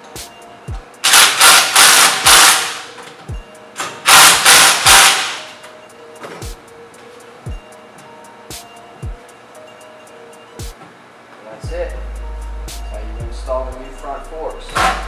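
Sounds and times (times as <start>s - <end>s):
impact driver hammering: 1.0s - 2.9s, 4.0s - 5.5s.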